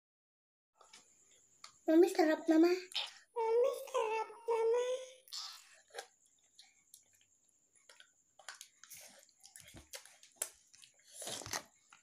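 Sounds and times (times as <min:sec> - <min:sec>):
chewing: 0:05.3 - 0:12.0.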